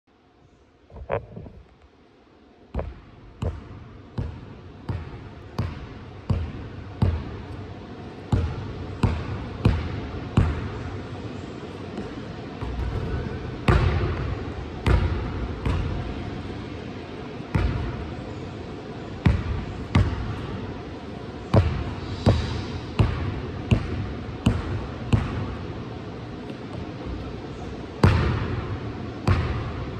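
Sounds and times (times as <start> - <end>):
basketball bouncing on gym floor: 2.7 - 7.6, 8.3 - 10.8, 12.0 - 16.3, 17.5 - 18.1, 19.2 - 20.6, 21.5 - 25.7, 28.0 - 29.9.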